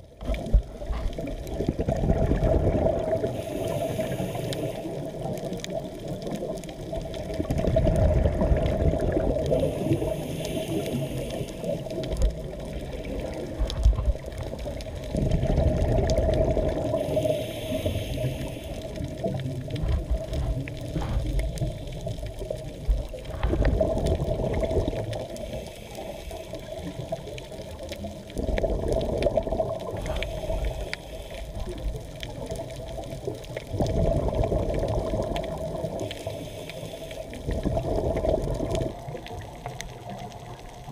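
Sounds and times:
exhaled bubbles underwater: 0:00.0 - 0:40.9
diver inhaling hiss: 0:03.2 - 0:05.1, 0:09.5 - 0:12.0, 0:16.9 - 0:19.2, 0:25.3 - 0:26.9, 0:30.0 - 0:31.8, 0:36.0 - 0:37.4.

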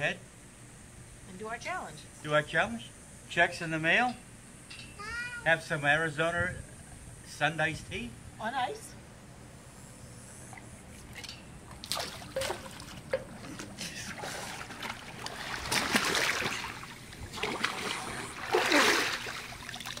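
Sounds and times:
water splashing in pool: 0:11.0 - 0:20.0.

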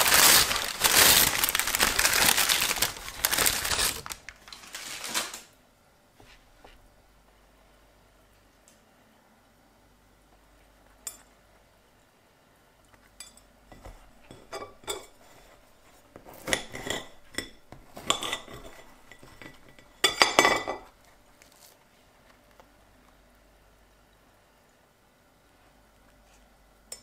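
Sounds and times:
knife scraping on plate: 0:16.3 - 0:20.2.

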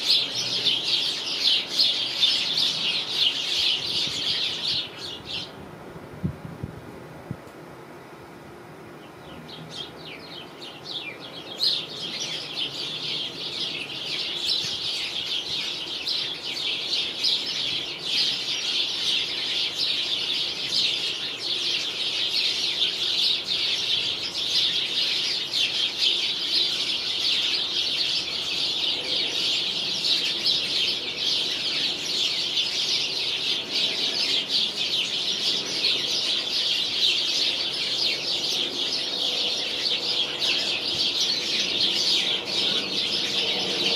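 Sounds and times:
sparrows chirping: 0:00.0 - 0:05.6, 0:09.0 - 0:43.9.

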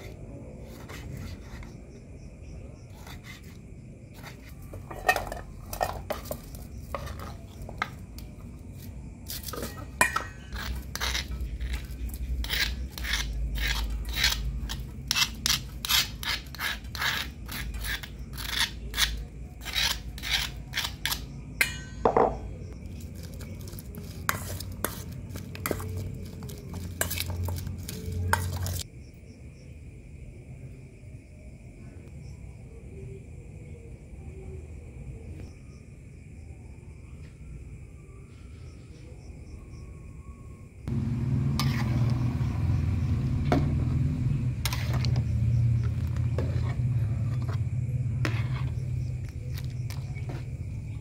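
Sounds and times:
scraping stone mortar: 0:00.0 - 0:01.8, 0:02.9 - 0:21.3, 0:22.0 - 0:28.8, 0:41.5 - 0:42.2, 0:44.6 - 0:50.6.

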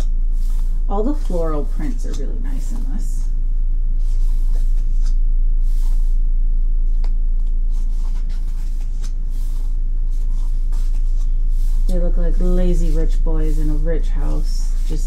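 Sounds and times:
low steady hum: 0:00.0 - 0:15.0
book pages turning: 0:04.0 - 0:06.2, 0:06.9 - 0:12.4.

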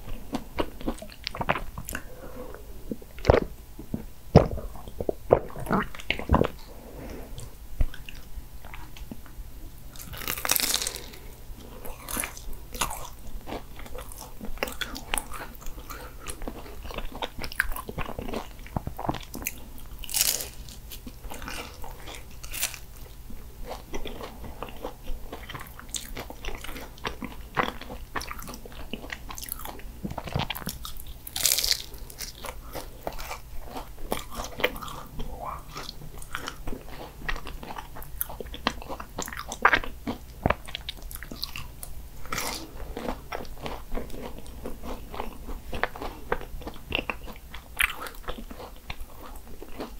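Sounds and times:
chewing: 0:00.0 - 0:06.7, 0:10.0 - 0:49.9
pastry crunching when bitten: 0:09.9 - 0:49.9.

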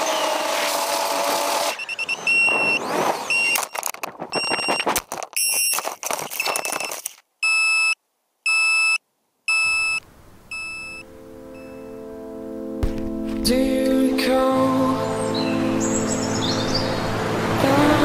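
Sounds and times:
high electronic beep: 0:01.7 - 0:05.8, 0:06.4 - 0:12.0
buzzer short high beeps: 0:07.4 - 0:11.0
drone crashing and clattering: 0:12.8 - 0:13.7.

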